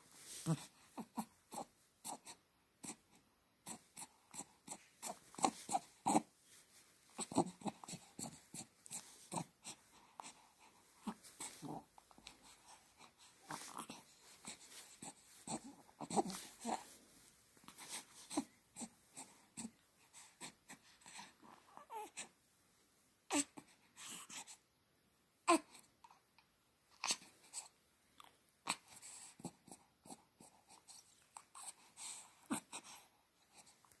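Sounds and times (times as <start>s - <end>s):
baby breathing and mouth noises: 0.1s - 22.4s, 26.9s - 34.0s
baby cooing and grunting: 0.3s - 6.3s, 7.2s - 17.0s, 17.8s - 19.8s, 20.4s - 22.3s, 23.3s - 24.5s, 25.4s - 25.9s.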